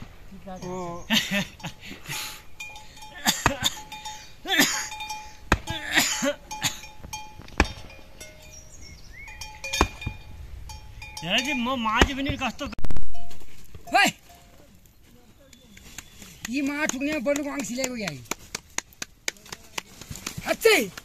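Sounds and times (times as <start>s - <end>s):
faint ringing clinks: 2.4s - 5.5s, 6.1s - 11.8s, 13.1s - 15.1s
sharp knocks: 5.5s - 5.9s, 7.0s - 8.1s, 9.6s - 10.3s.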